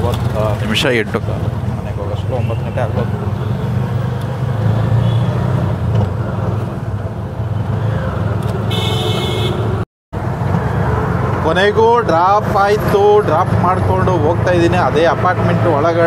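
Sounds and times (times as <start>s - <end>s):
auto-rickshaw engine running: 0.0s - 16.0s.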